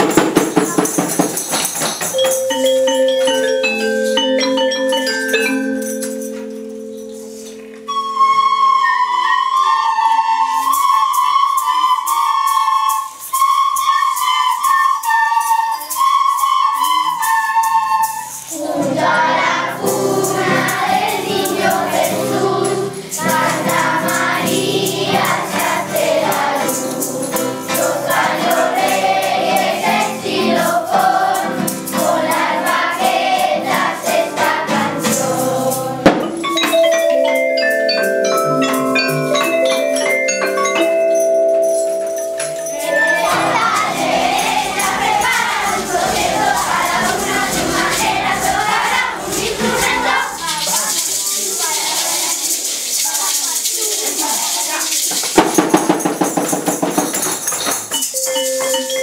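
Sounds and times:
hand percussion ticking: 0.0 - 9.4, 10.6 - 59.0
children's choir singing: 0.0 - 37.2, 42.3 - 57.0
metallophone notes ringing: 1.9 - 9.9, 35.6 - 49.1, 57.3 - 59.0
recorders piping a tune: 2.1 - 51.2, 57.9 - 59.0.

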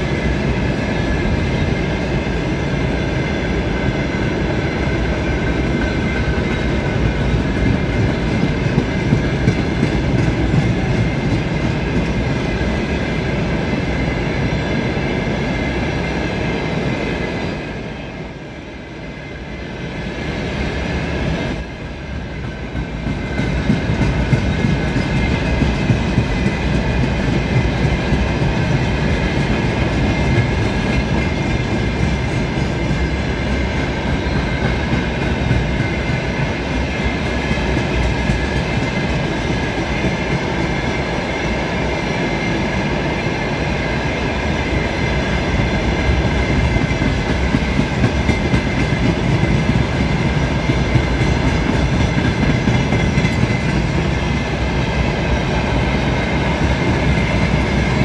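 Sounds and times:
freight train rumbling past: 0.0 - 58.0.

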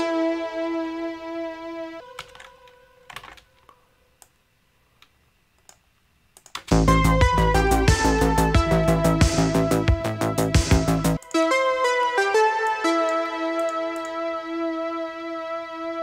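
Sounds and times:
synthwave loop with drums and bass: 6.7 - 16.0.

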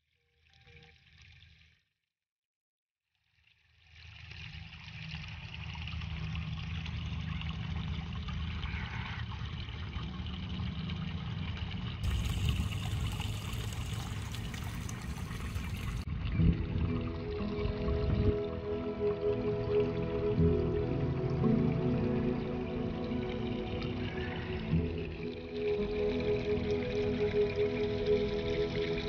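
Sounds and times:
trickle of running water: 0.0 - 1.9, 3.1 - 29.0
low rumble: 10.0 - 25.8.

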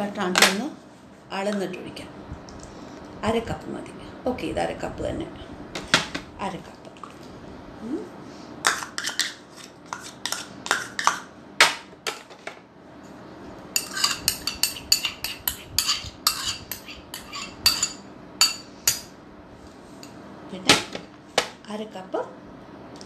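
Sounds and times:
spoon scraping a bowl: 8.6 - 11.2, 13.8 - 19.1.

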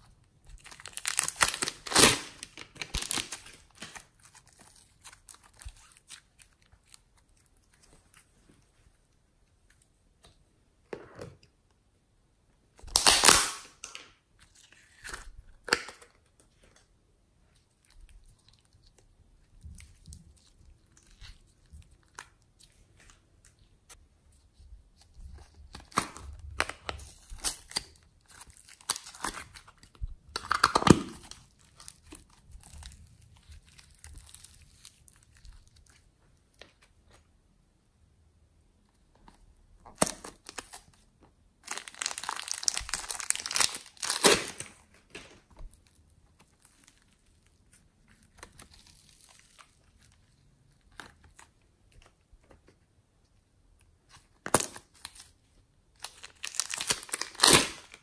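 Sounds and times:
slime squishing by hand: 12.7 - 37.4, 38.7 - 58.0.

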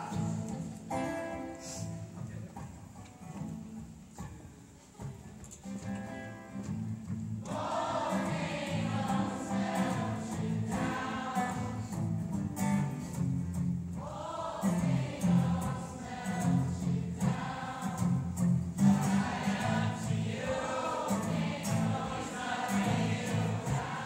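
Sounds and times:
acoustic guitar: 0.0 - 24.0
crowd singing: 7.4 - 13.2, 13.9 - 24.0.

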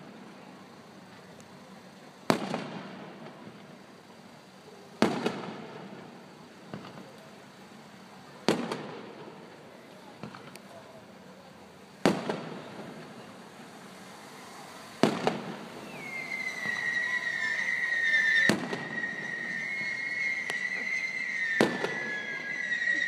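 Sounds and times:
firework crackle: 0.0 - 23.0
firework shells bursting: 12.0 - 23.0
high whistle: 15.3 - 23.0.

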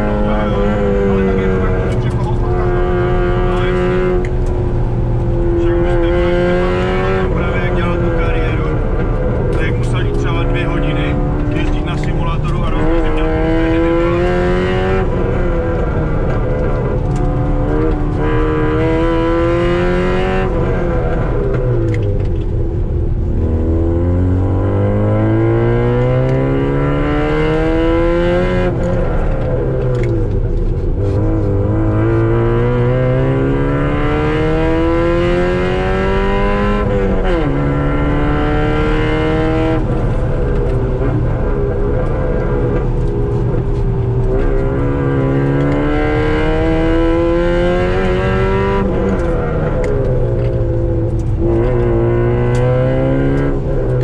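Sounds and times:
car engine revving: 0.0 - 54.0.

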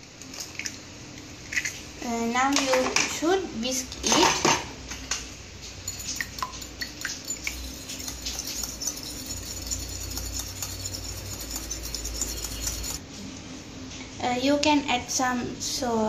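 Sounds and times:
fork whisking eggs in bowl: 5.6 - 13.0
ringing clinks: 5.8 - 13.0.

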